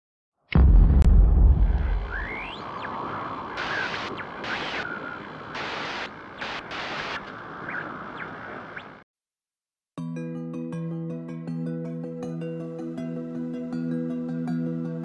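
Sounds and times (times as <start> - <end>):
heavy low rumble: 0.6 - 3.7
rushing wind noise: 1.6 - 9.0
chirp-like calls: 7.6 - 9.0.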